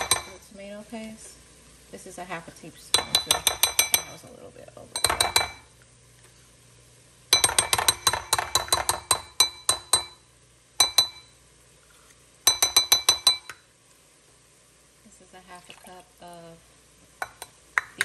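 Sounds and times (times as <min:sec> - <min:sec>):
metal spoon clinking on glass bowl: 0:00.0 - 0:00.4, 0:02.9 - 0:04.2, 0:05.0 - 0:05.7, 0:07.3 - 0:10.2, 0:10.8 - 0:11.3, 0:12.5 - 0:13.6.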